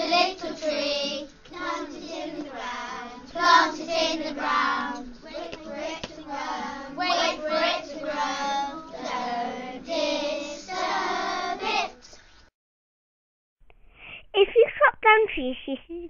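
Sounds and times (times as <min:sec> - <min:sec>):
young children singing: 0:00.0 - 0:12.2.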